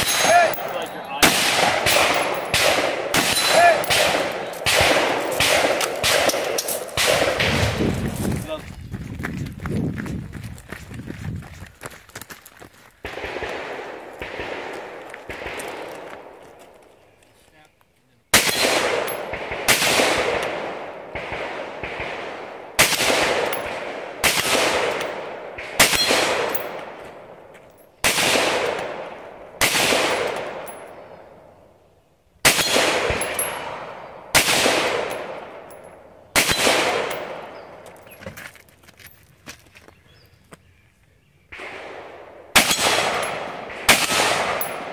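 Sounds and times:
rifle shots with echo: 0:00.0 - 0:08.0, 0:13.0 - 0:16.5, 0:18.3 - 0:27.4, 0:28.0 - 0:31.4, 0:32.4 - 0:37.9, 0:41.5 - 0:44.9.

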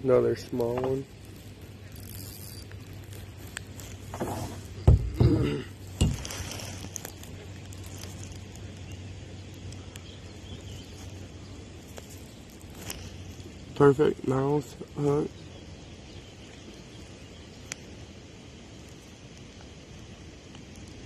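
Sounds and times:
low steady hum: 0:00.0 - 0:21.0
handling knocks and rustles: 0:02.1 - 0:08.4.

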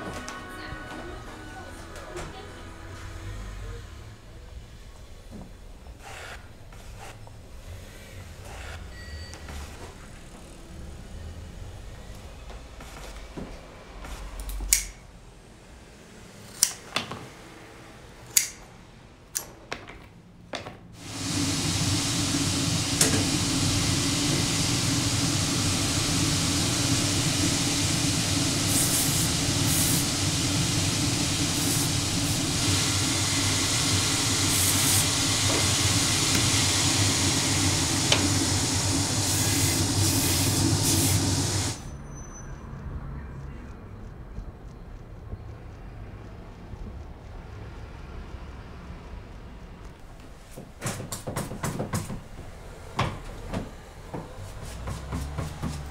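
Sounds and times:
sanding machine running: 0:21.0 - 0:41.9, 0:53.7 - 0:55.9
sharp clicks and taps: 0:43.7 - 0:48.9.

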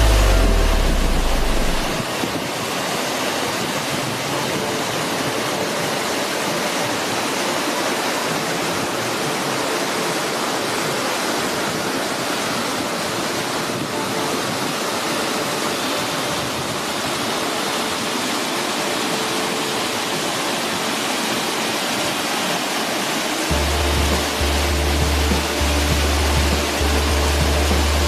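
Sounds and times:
deep low rumble: 0:00.0 - 0:02.0
waterfall rushing into pond: 0:00.0 - 0:28.0.

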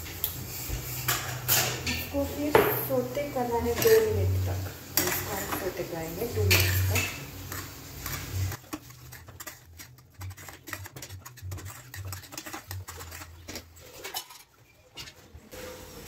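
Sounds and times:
spoon scraping a pan: 0:00.0 - 0:16.0
pan knocking: 0:01.2 - 0:04.2.

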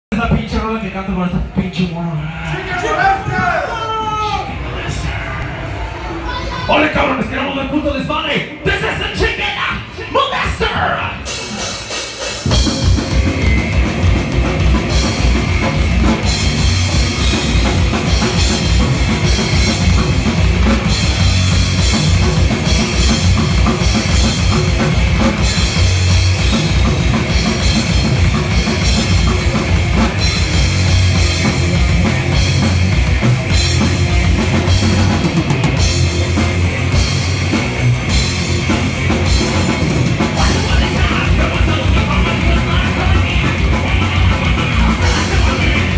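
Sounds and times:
live metal band playing: 0:02.2 - 0:45.9
rapid bass drum strokes: 0:11.3 - 0:45.9.

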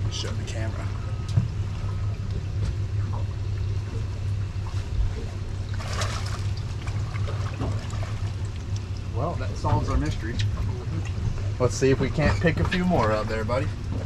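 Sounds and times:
low hum: 0:00.0 - 0:14.0
water trickling: 0:05.5 - 0:12.0
fish splashing into water: 0:05.6 - 0:09.1.

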